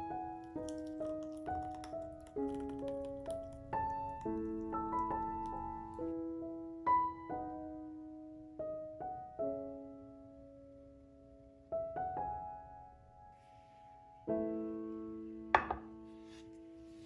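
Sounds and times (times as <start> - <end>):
gentle piano music: 0.0 - 17.0.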